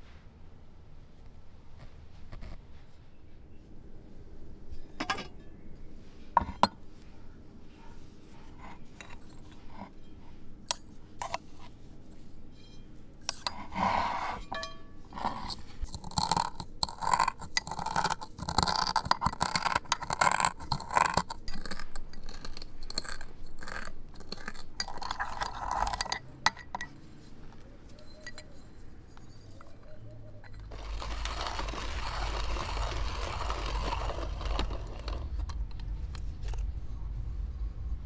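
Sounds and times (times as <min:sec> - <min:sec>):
seeds cracking: 0:30.5 - 0:36.8.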